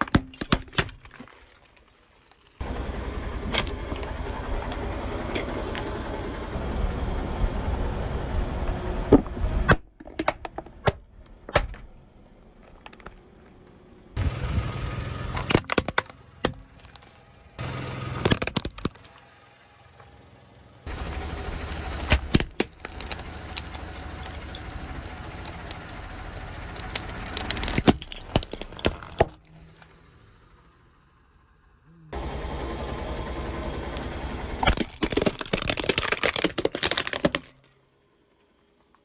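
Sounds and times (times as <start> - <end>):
plastic cracking under car tyre: 0.0 - 2.6, 12.5 - 13.6, 15.4 - 17.2, 18.2 - 19.2, 21.7 - 29.9, 34.6 - 37.8
car low rumble: 0.0 - 39.0.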